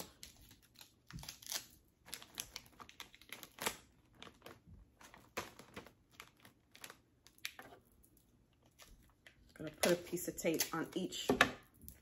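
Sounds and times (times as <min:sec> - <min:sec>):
plastic bags crinkling: 0:00.0 - 0:08.0.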